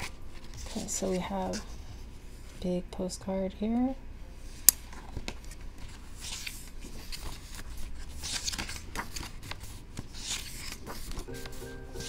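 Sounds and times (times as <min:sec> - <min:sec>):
pages turning: 0:00.0 - 0:01.9, 0:04.8 - 0:12.0.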